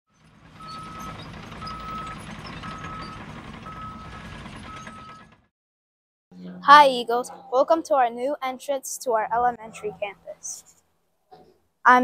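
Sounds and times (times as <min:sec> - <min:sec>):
vehicle engine: 0:00.1 - 0:05.5, 0:06.3 - 0:08.6, 0:09.2 - 0:10.8
reversing alarm beeping: 0:00.6 - 0:05.4.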